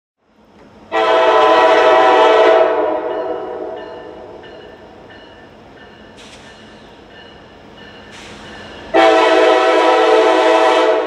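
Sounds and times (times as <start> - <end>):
locomotive air horn blast: 0.9 - 4.4, 8.9 - 11.0.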